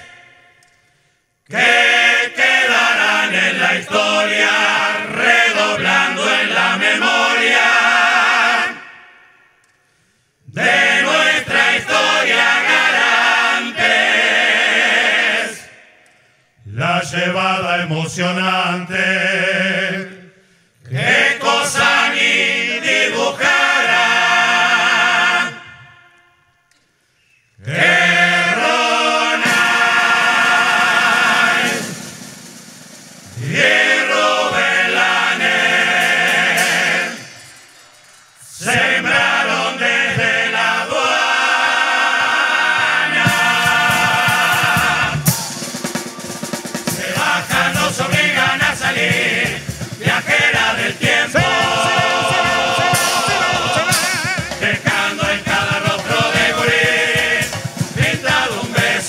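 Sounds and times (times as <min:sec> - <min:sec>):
men's choir singing in harmony: 0:01.5 - 0:09.2, 0:10.5 - 0:15.9, 0:16.6 - 0:26.0, 0:27.6 - 0:32.5, 0:33.2 - 0:59.0
drum beat with snare drum: 0:28.5 - 0:37.3, 0:43.1 - 0:59.0.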